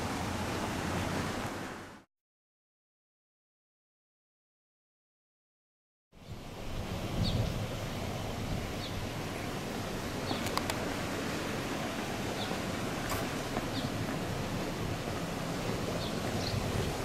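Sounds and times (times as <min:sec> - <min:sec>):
wind rumble on microphone: 0:06.2 - 0:17.0.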